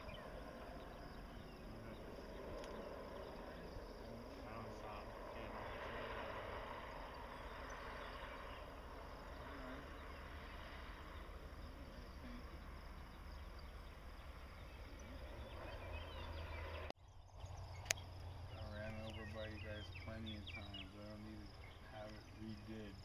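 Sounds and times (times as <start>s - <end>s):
low rumble: 0.0s - 23.0s.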